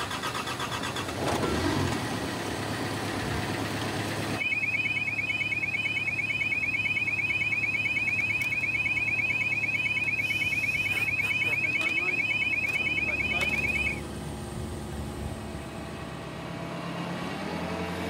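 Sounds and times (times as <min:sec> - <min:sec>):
steady engine hum: 0:00.0 - 0:18.0
electronic warning alarm warble: 0:04.4 - 0:14.0
short beeps: 0:04.4 - 0:14.0.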